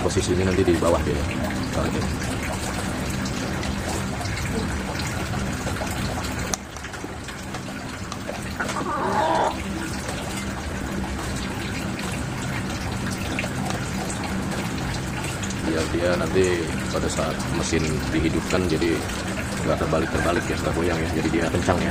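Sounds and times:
water running and splashing: 0.0s - 21.9s.

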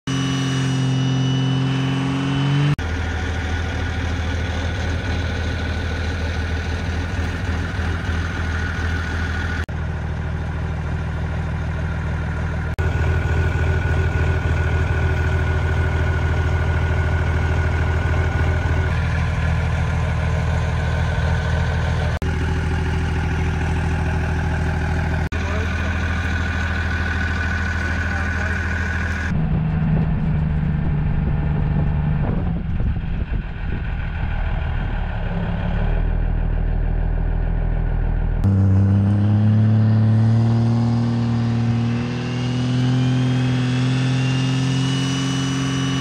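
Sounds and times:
diesel engine pulling under load: 2.4s - 44.8s
diesel engine idling: 2.8s - 38.6s.

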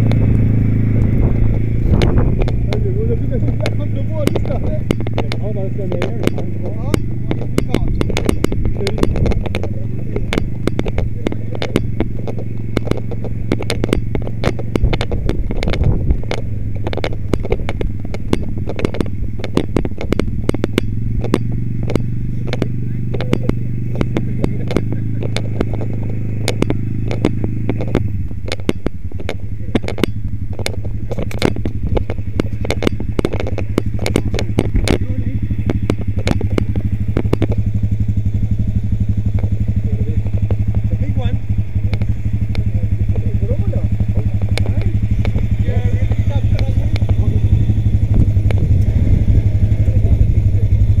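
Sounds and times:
atv engine running: 0.0s - 51.0s
clicking and clattering: 0.0s - 51.0s.

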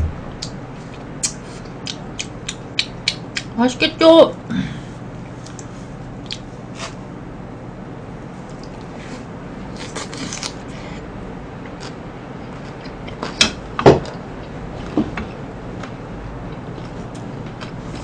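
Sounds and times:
chewing crunchy food: 9.8s - 10.6s.

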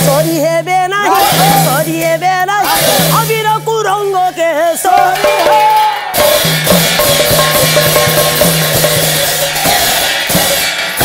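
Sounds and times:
fast drumming: 0.0s - 11.0s
ringing cymbals: 4.9s - 11.0s.

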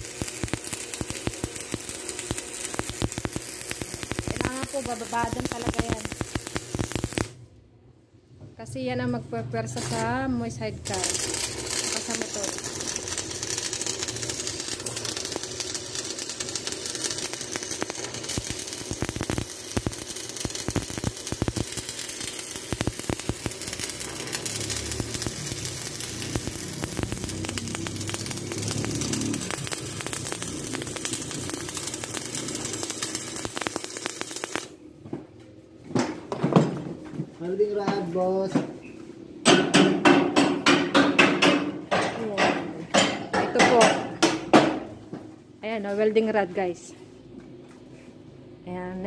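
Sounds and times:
welding arc crackling and sizzling: 0.0s - 7.5s, 8.6s - 34.9s.

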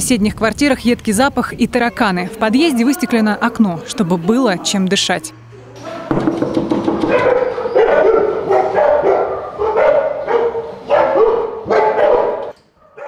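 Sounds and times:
dogs barking behind door: 2.3s - 13.0s
knock on door: 6.1s - 7.4s.

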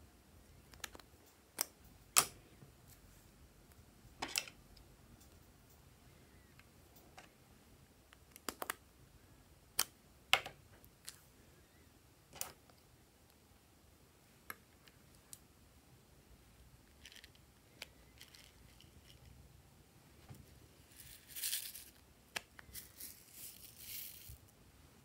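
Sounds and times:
soft rustle: 22.6s - 24.5s.

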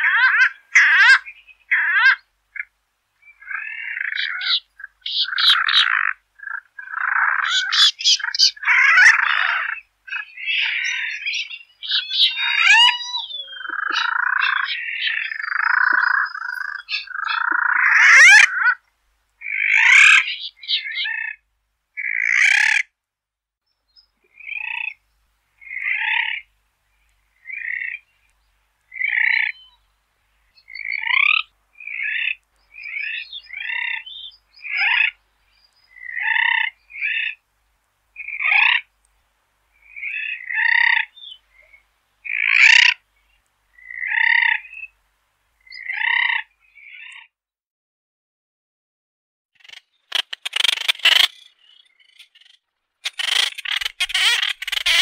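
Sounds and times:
seabird calling: 3.4s - 18.8s, 53.0s - 55.0s.

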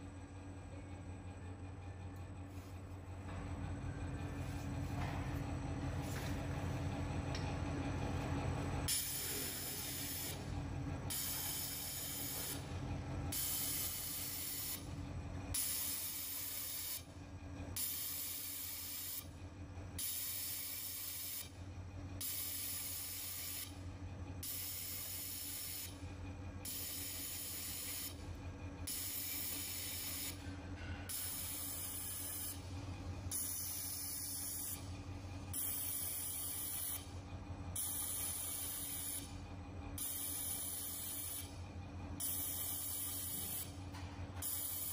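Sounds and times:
low machine hum: 0.0s - 44.9s
laser welder hissing: 8.9s - 10.4s, 11.1s - 12.6s, 13.4s - 14.8s, 28.9s - 30.4s, 42.2s - 43.7s, 44.5s - 44.9s.

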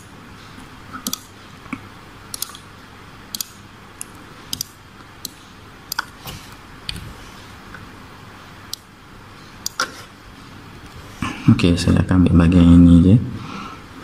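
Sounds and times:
faint steady hiss: 0.0s - 14.0s
computer mouse clicking: 0.9s - 1.3s, 2.3s - 2.6s, 3.3s - 6.2s.

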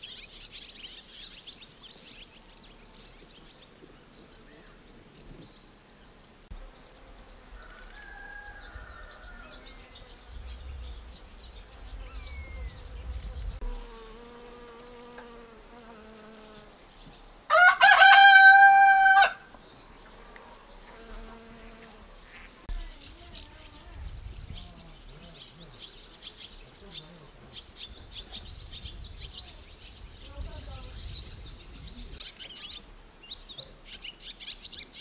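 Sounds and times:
small birds chirping: 0.0s - 17.6s, 19.4s - 35.0s
rooster crowing: 7.5s - 10.1s, 17.5s - 19.5s.

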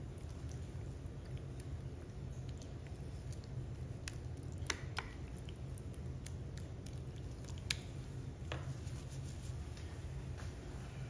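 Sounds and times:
sauce squishing: 0.0s - 8.5s
steady low hum: 0.0s - 11.0s.

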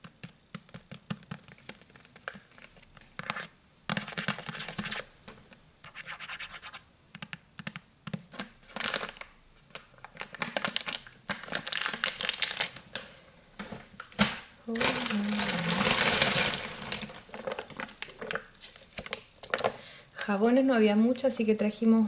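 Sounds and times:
fingernails scratching plastic wrapper: 14.8s - 18.4s.

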